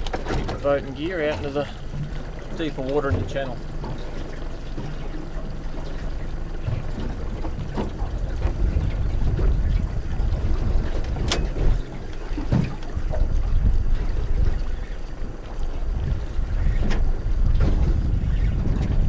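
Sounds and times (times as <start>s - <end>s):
outboard motor running low: 0.0s - 19.0s
water against hull: 0.0s - 19.0s
wind on microphone: 0.0s - 19.0s
sharp click: 11.3s - 11.6s.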